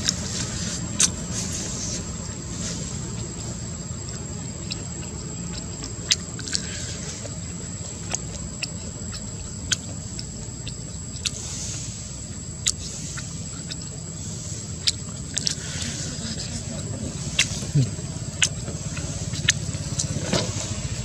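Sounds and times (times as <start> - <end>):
sharp clicks and ticks: 12.3 - 14.1, 14.7 - 21.0.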